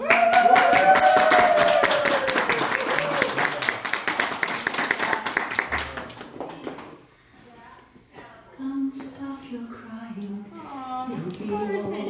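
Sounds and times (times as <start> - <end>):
whooping and cheering voices: 0.0 - 3.8
people applauding: 0.0 - 7.0.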